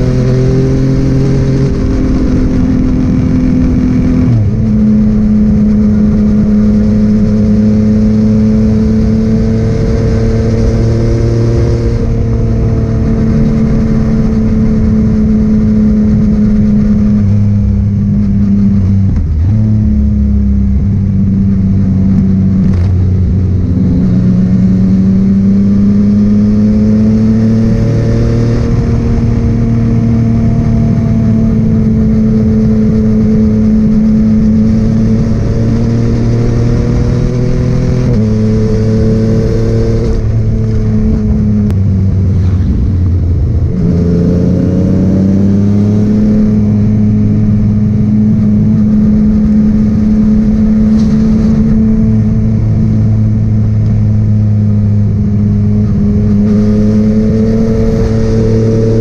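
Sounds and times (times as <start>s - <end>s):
motorcycle engine cruising: 0.0s - 59.0s.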